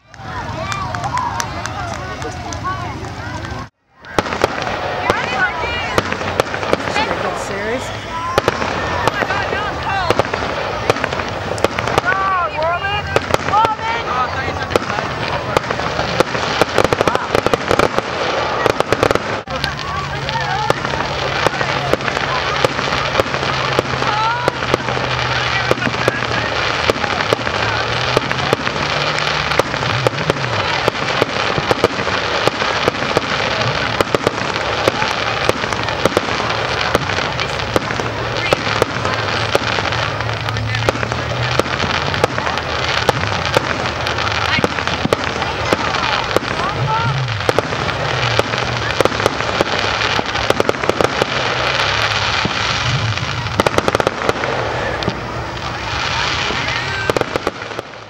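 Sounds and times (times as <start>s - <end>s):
crackling hiss: 0.0s - 58.0s
fireworks popping and banging: 0.0s - 58.0s.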